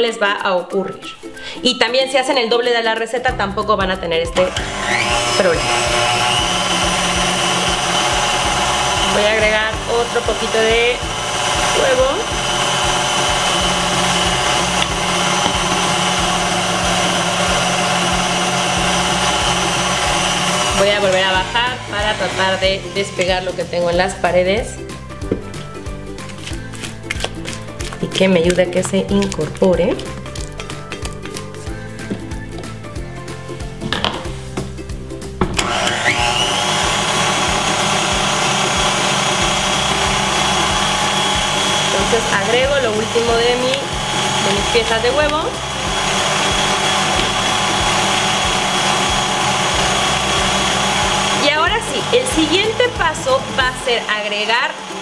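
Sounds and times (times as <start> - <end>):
background music: 0.0 - 55.0
stand mixer running: 4.4 - 23.6, 35.6 - 55.0.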